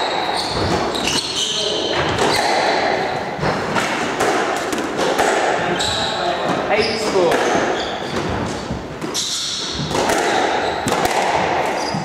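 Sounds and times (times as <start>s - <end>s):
shoes squeaking on wooden floor: 0.0s - 3.9s, 5.7s - 12.0s
squash ball knocking: 1.9s - 5.7s, 6.4s - 12.0s.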